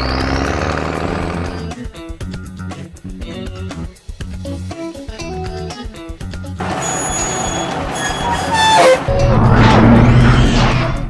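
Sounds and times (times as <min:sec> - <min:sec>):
background music: 0:00.0 - 0:11.0
cartoon engine whine: 0:06.6 - 0:11.0.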